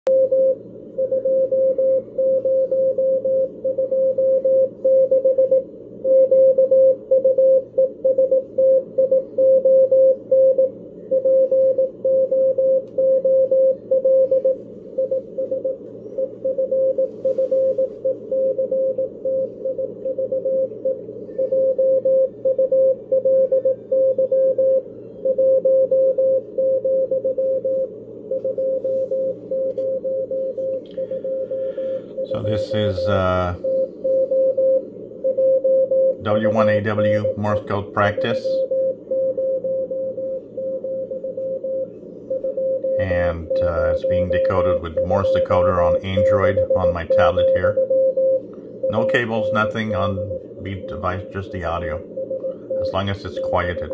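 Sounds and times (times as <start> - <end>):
morse code beat tone: 0.0 - 53.9
radio band background noise: 12.8 - 25.5, 27.2 - 35.3, 36.1 - 39.1, 40.3 - 53.9.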